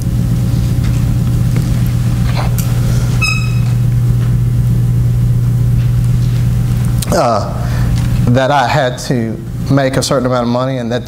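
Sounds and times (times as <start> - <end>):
loud low hum: 0.0 - 11.0.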